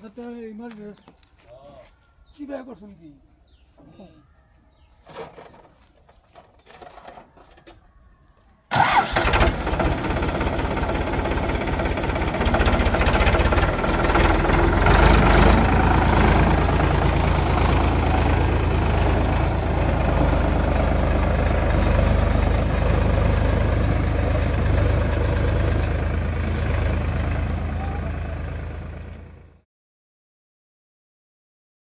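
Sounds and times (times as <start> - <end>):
tractor diesel engine: 8.7 - 29.6.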